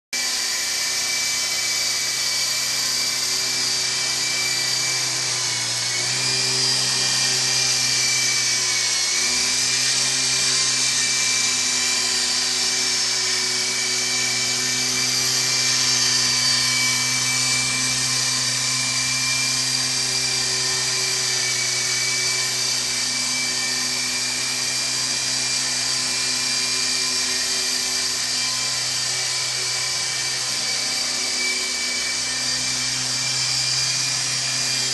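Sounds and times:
toy helicopter rotor whine: 0:00.2 - 0:34.9.

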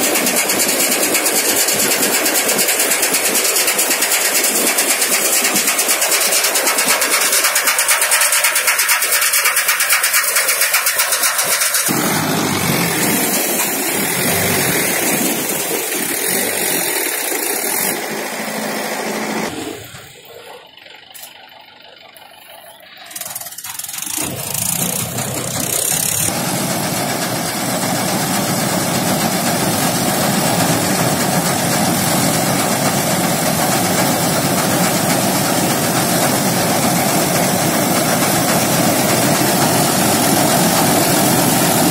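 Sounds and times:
combine harvester running: 0:00.0 - 0:41.9.

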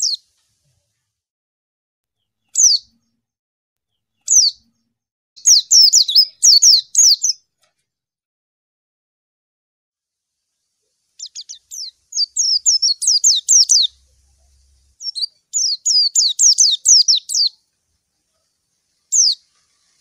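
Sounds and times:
bird high falling chirps: 0:00.0 - 0:00.3, 0:02.5 - 0:03.2, 0:04.2 - 0:04.8, 0:05.4 - 0:07.4, 0:11.2 - 0:17.6, 0:19.1 - 0:19.6.

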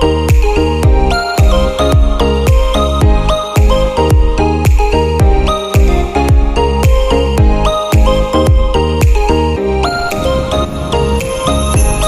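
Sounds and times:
kick-drum beat: 0:00.0 - 0:09.4, 0:11.2 - 0:12.0
sustained synth notes: 0:09.6 - 0:12.0.

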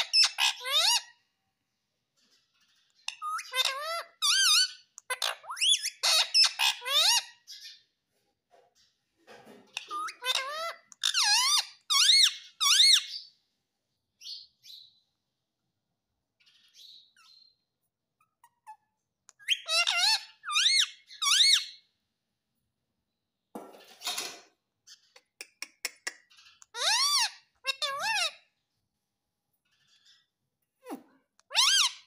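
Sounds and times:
parakeet squeaky calls: 0:00.0 - 0:01.2, 0:02.6 - 0:07.8, 0:09.7 - 0:13.3, 0:16.4 - 0:17.6, 0:18.2 - 0:21.9, 0:24.8 - 0:28.5, 0:29.7 - 0:32.0.

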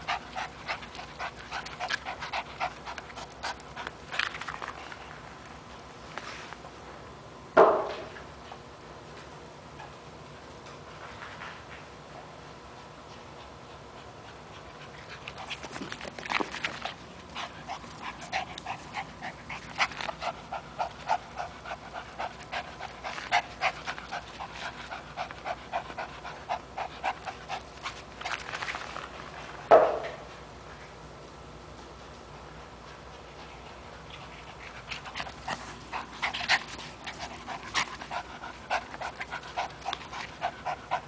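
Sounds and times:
small dog panting: 0:00.0 - 0:05.0, 0:12.6 - 0:28.6, 0:32.8 - 0:41.0.

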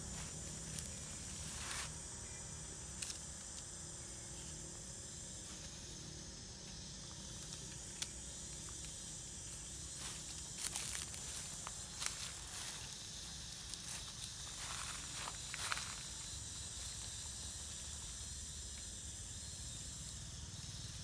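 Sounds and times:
high-pitched insect drone: 0:00.0 - 0:21.0
dry leaves crackling: 0:09.9 - 0:16.1.

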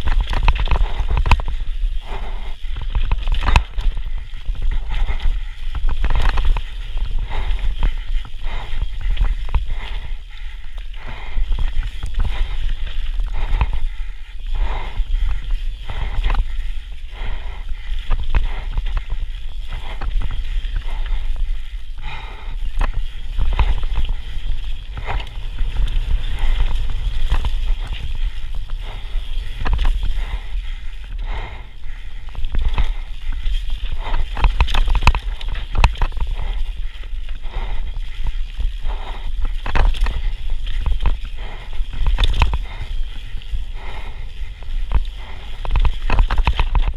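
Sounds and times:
bike chain and frame rattling: 0:00.0 - 0:46.9
tyres rumbling on dirt: 0:00.0 - 0:46.9
wind on microphone: 0:00.0 - 0:46.9.

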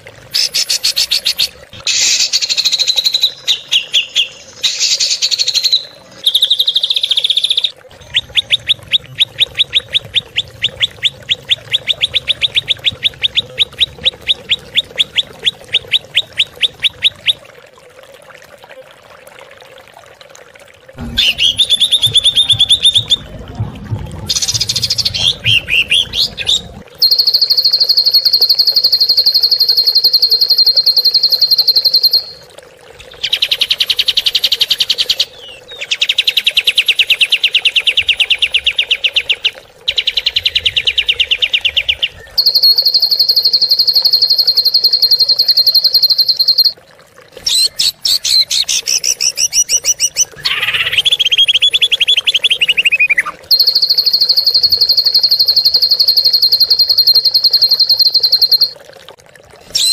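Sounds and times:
songbird fast trills: 0:39.2 - 0:46.7, 0:47.5 - 0:58.7.

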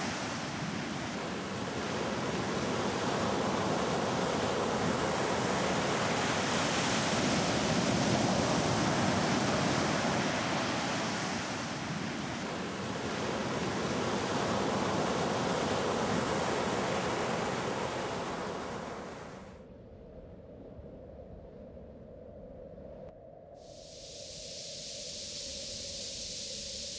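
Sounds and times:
ocean surf breaking: 0:00.0 - 0:19.5.

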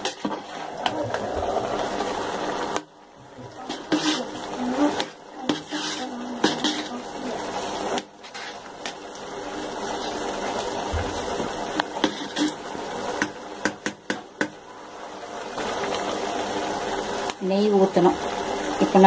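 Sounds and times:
ladle stirring: 0:00.0 - 0:02.2, 0:03.5 - 0:07.2
rice bubbling in a pot: 0:00.0 - 0:19.0.

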